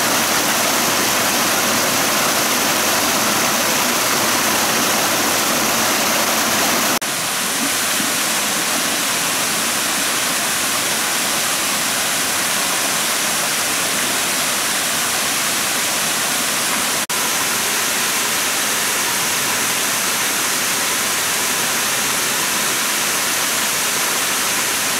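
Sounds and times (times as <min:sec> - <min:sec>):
water cascading over falls: 0:00.0 - 0:24.9.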